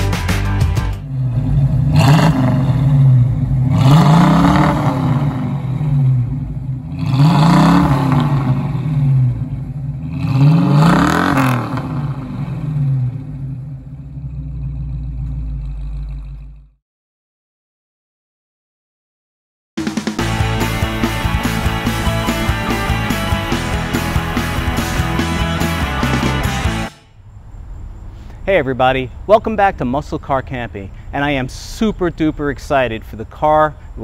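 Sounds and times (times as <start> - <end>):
car engine revving: 0.0 - 16.8, 20.2 - 28.4
car engine idling: 0.1 - 16.8, 20.2 - 34.0.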